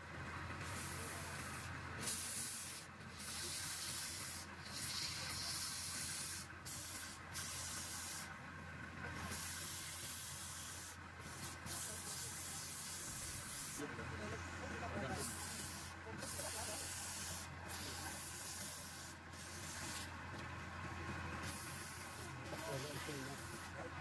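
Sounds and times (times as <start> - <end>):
sandpaper hissing on spinning wood: 0.6 - 8.4, 9.1 - 13.9, 14.9 - 20.2, 21.4 - 24.0.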